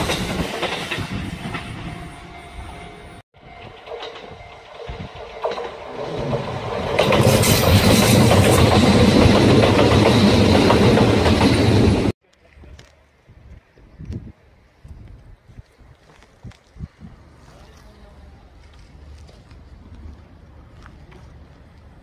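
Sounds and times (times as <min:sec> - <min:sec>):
electric train passing at speed: 0:00.0 - 0:12.1
faint wind: 0:00.0 - 0:22.0.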